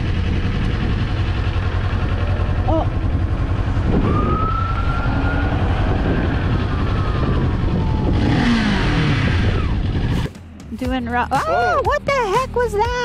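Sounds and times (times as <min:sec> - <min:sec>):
whining tone: 0:00.0 - 0:10.3
motorcycle engine running: 0:00.0 - 0:13.0.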